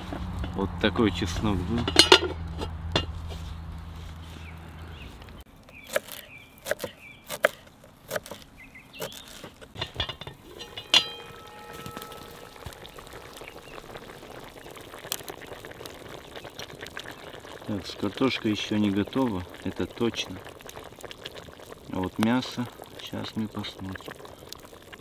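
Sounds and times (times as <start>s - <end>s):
loud ringing metal clank: 1.8s - 3.1s, 9.8s - 13.2s
pot lid and utensils clinking: 1.8s - 3.1s, 9.8s - 13.5s.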